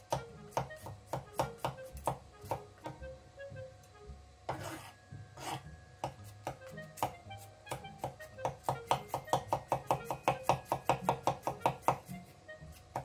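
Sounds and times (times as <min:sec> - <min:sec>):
knife scraping root on board: 0:04.5 - 0:05.7.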